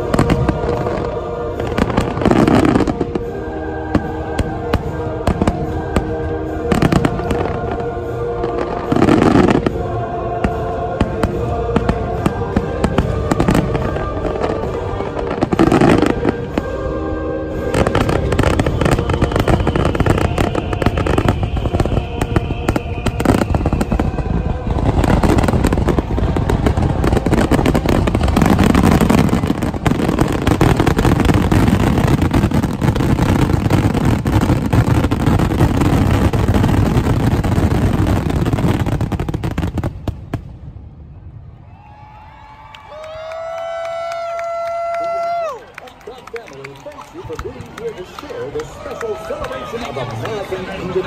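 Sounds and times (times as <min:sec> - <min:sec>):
orchestral music: 0:00.0 - 0:40.7
fireworks bursting and crackling: 0:00.0 - 0:51.0
fountain fireworks firing: 0:00.0 - 0:51.0.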